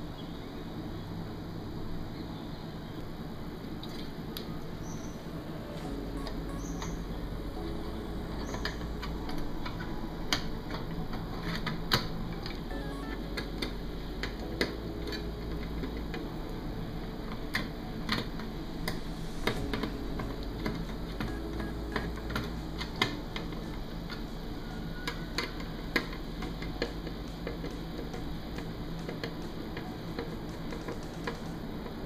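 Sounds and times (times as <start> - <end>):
low hum: 0.0 - 32.0.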